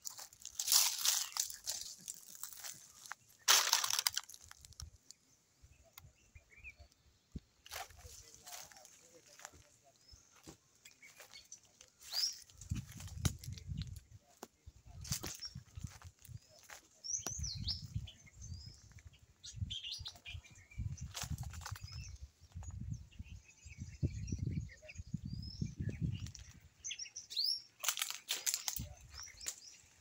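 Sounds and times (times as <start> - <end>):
small birds chirping: 0.0 - 30.0
wind buffeting microphone: 12.5 - 16.4, 17.3 - 26.7.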